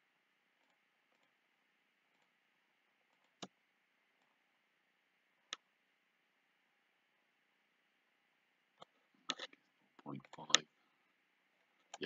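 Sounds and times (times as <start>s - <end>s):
computer mouse clicks: 3.1s - 3.6s, 8.8s - 10.7s.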